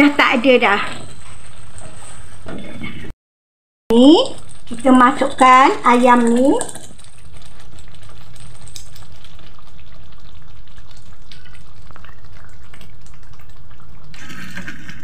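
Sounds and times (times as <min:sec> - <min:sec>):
wooden spatula scraping a pan: 0:00.4 - 0:03.1
chicken sizzling in a wok: 0:04.0 - 0:15.0.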